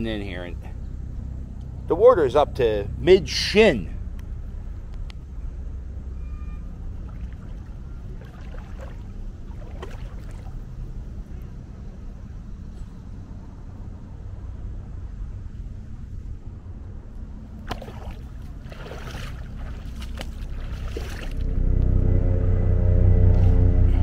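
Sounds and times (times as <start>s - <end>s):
steady low rumble: 0.0s - 24.0s
feet sloshing through water: 7.0s - 11.0s, 17.6s - 21.5s.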